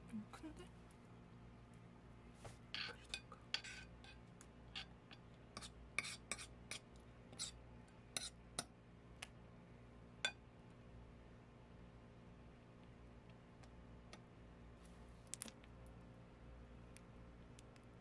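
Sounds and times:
metal spoon scraping ceramic plate: 2.8s - 4.2s, 5.6s - 7.6s.

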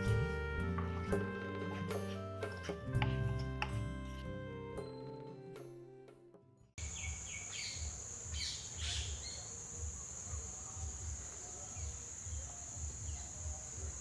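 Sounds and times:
bird chirps: 6.8s - 9.6s.

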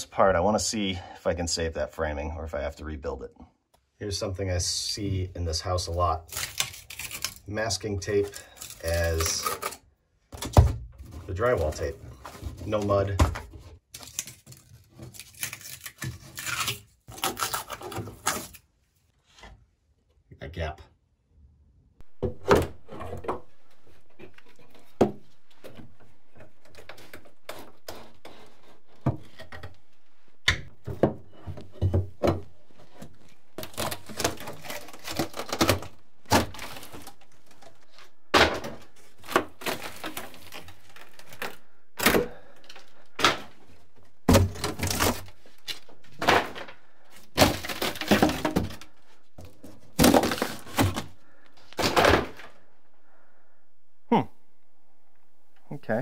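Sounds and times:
drywall cracking and tearing: 6.1s - 9.8s, 10.4s - 18.6s, 30.6s - 52.7s.

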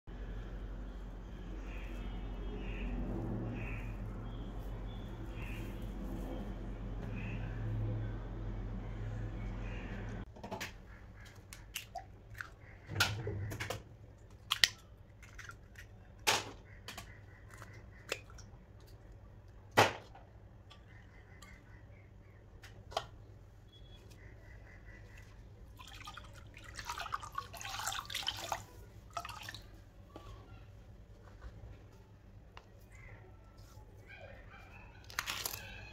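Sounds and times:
milk pouring and splashing: 25.6s - 29.8s.

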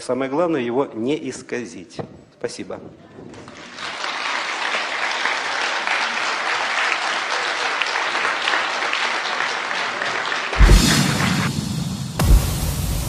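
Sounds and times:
audience applauding: 3.4s - 11.6s
music with deep bass: 12.2s - 13.0s.

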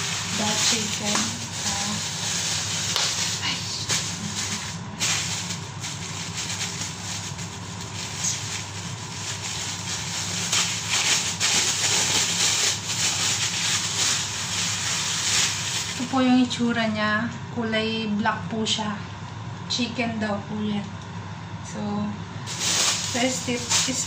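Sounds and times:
plastic bag crinkling: 0.0s - 16.2s, 22.5s - 24.0s.

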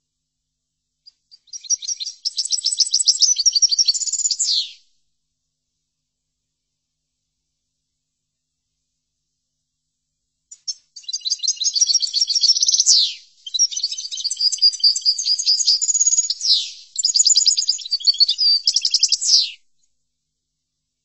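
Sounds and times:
goldfinch twittering song: 1.3s - 4.8s, 10.6s - 19.5s.

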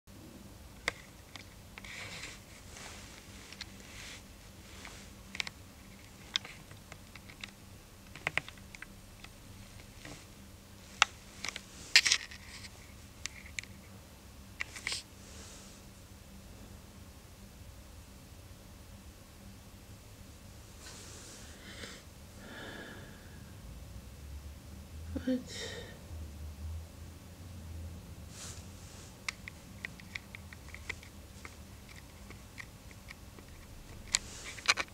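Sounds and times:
low steady hum: 0.1s - 34.9s
soft hiss: 0.2s - 34.9s
sharp irregular clicks: 6.3s - 9.4s
camera handling clicks and scratches: 11.4s - 12.7s, 29.3s - 34.9s.

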